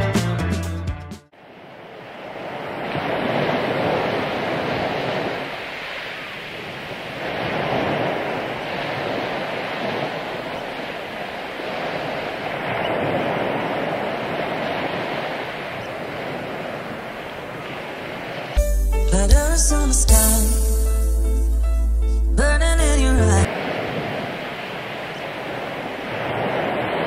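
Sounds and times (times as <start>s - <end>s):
ocean waves washing in: 1.3s - 18.6s, 22.0s - 27.0s.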